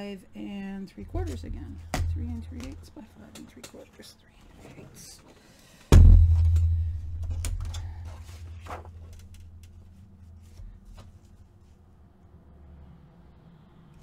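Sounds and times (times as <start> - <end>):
low hum: 5.9 - 10.8
paper rustling: 8.1 - 11.4.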